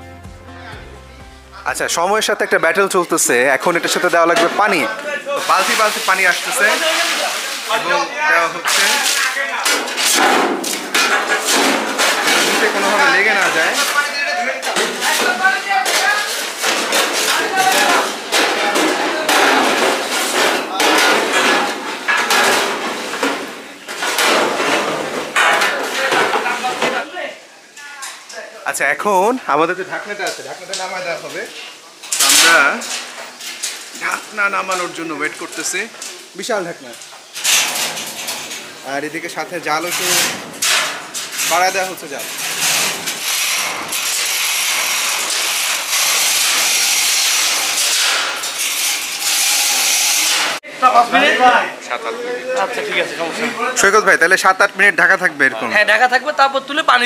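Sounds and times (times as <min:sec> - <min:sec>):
metal ladles scraping a pot: 0:03.6 - 0:26.8
gas burner hissing: 0:29.1 - 0:50.6.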